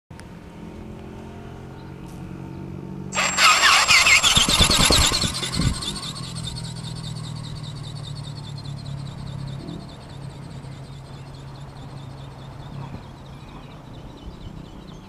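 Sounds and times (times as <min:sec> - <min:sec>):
electric motor whirring: 0:03.2 - 0:10.5.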